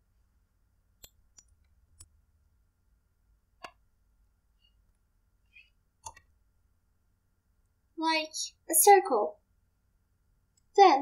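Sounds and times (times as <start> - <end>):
computer mouse and key clicks: 1.0 - 2.2, 3.6 - 3.8, 6.0 - 6.4.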